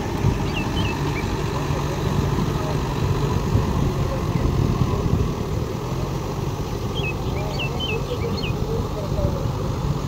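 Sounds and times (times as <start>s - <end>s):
tractor diesel engine under load: 0.0s - 10.0s.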